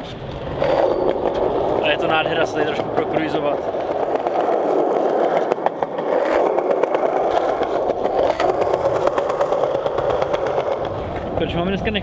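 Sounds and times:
skateboard wheels rumbling on stone: 0.0s - 12.0s
wheels clicking over joints: 0.0s - 12.0s.

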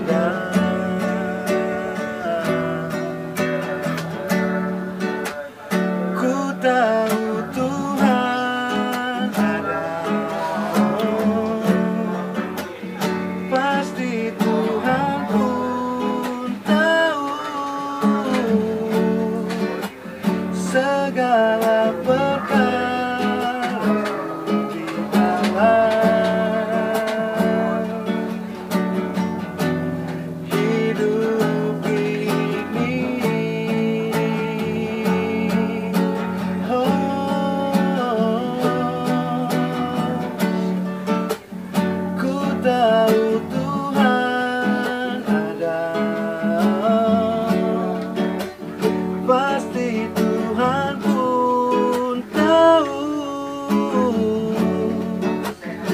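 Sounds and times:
acoustic guitar strumming: 0.0s - 55.9s
man singing: 0.0s - 55.9s.

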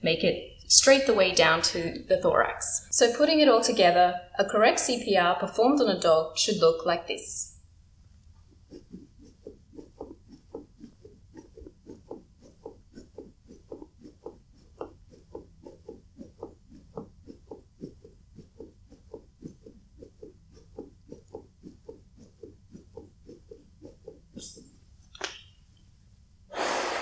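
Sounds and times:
soft chest compression pulses: 8.0s - 27.0s.

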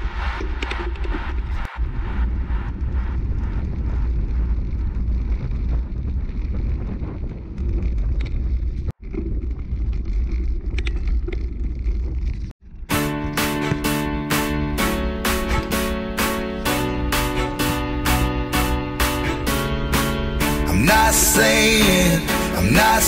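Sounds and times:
wind buffeting microphone: 0.0s - 12.5s
bike clicks and rattles: 5.3s - 12.5s.

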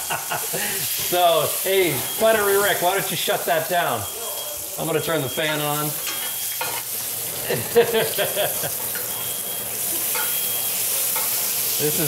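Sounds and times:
butter sizzling in a skillet: 0.0s - 12.0s.

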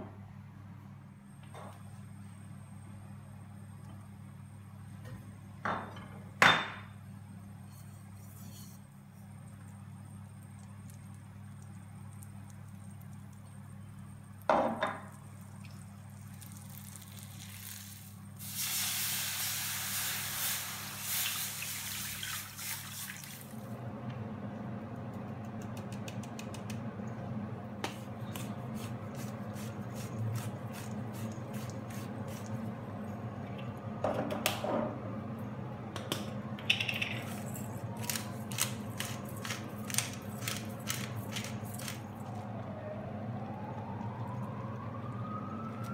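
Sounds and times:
liquid hissing in hot pan: 16.8s - 23.2s
low hum: 23.5s - 45.9s.

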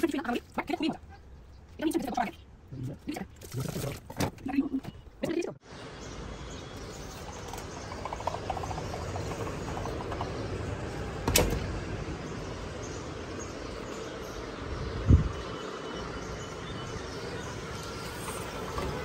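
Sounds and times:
outdoor ambience: 0.0s - 19.0s
sliding window shutting: 11.2s - 11.8s, 18.0s - 19.0s.

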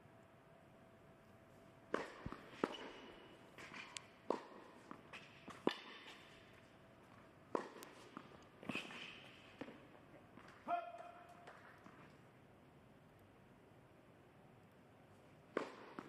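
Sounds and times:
tennis ball hits: 1.9s - 6.5s, 7.5s - 9.8s, 15.5s - 16.0s.

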